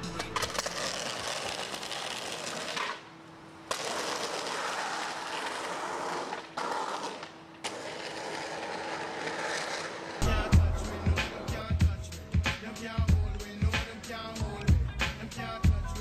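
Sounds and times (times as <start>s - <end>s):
skateboard wheels rolling on asphalt: 0.0s - 10.3s
skateboard landing: 0.1s - 3.1s, 3.7s - 10.3s.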